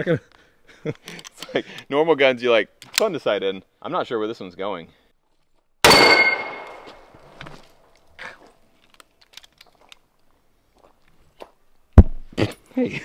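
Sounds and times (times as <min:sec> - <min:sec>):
pistol shot echo: 0:05.8 - 0:06.9.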